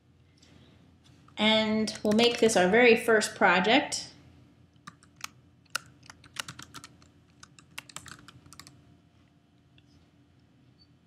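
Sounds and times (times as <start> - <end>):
computer keyboard typing: 1.9 - 2.6, 4.8 - 8.8.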